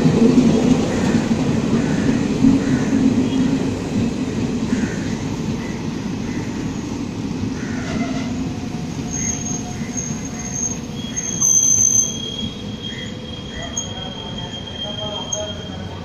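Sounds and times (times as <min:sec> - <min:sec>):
train coaches rumbling past: 0:00.0 - 0:16.0
high-pitched train wheel squeal: 0:07.8 - 0:16.0.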